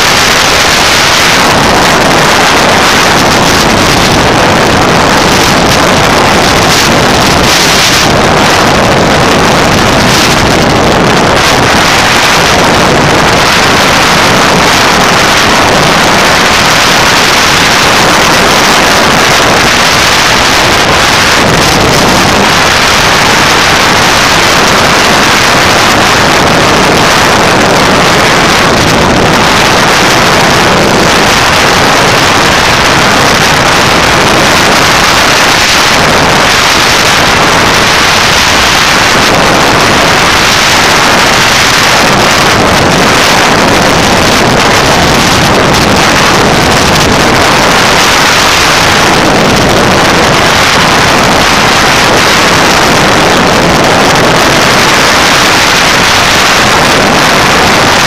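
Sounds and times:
motorcycle riding noise: 0.0s - 58.0s
wind rushing over microphone: 0.0s - 58.0s.

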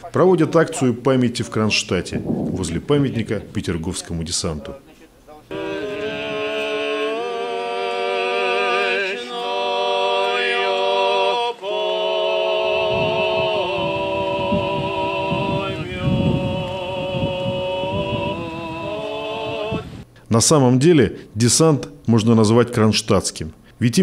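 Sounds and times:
men singing a cappella chords: 5.5s - 20.0s.

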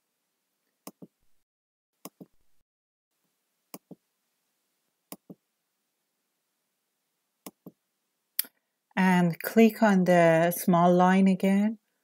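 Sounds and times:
computer mouse clicking: 0.8s - 1.1s, 2.0s - 2.3s, 3.7s - 4.0s, 5.1s - 5.4s.

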